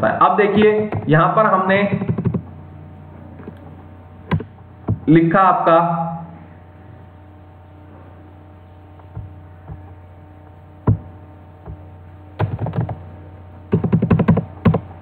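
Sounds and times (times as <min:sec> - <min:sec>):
low hum: 0:00.0 - 0:15.0
computer keyboard keystrokes: 0:02.0 - 0:02.4, 0:13.7 - 0:14.9.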